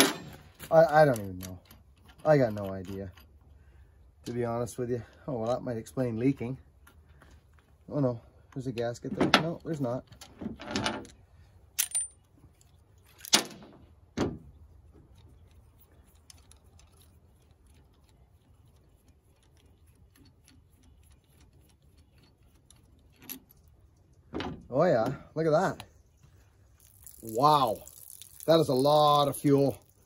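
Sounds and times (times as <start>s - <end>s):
small metal clicks and clinks: 0.0s - 3.5s.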